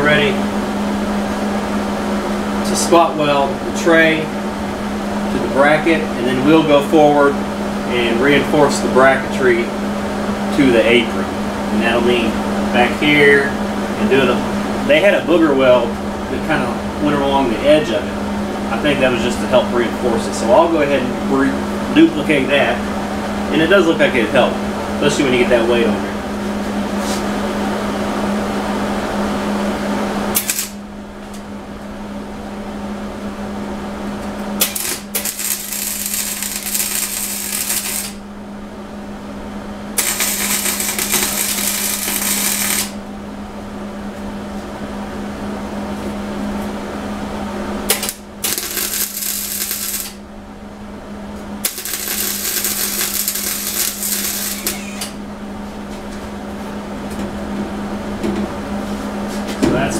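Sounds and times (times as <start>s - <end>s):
steady hum: 0.0s - 59.9s
welding arc crackling: 30.3s - 30.8s, 34.6s - 38.2s, 40.0s - 43.0s, 47.9s - 50.2s, 51.6s - 55.2s.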